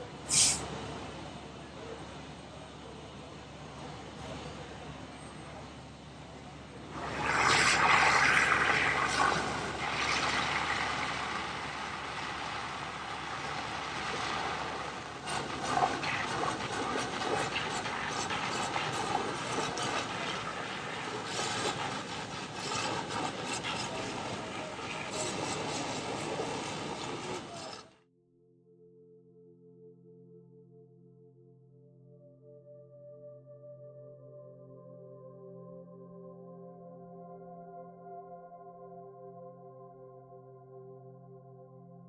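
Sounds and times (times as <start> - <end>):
mechanical roar with rattling: 3.7 - 28.0.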